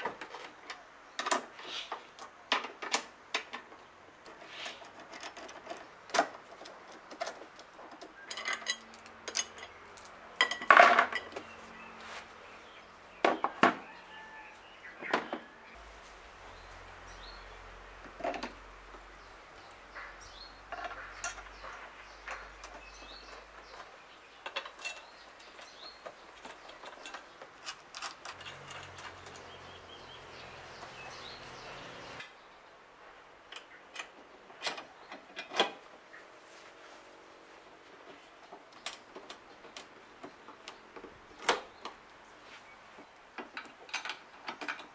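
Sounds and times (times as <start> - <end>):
metal clinks and knocks: 6.6 - 11.5, 20.7 - 29.6.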